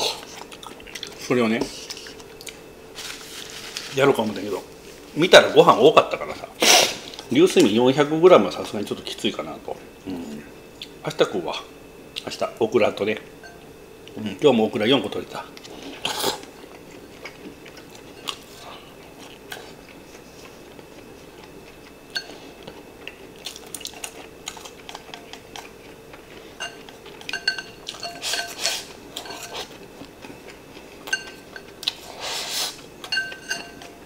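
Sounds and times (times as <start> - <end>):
rice rustling in bowl: 2.9 - 5.2.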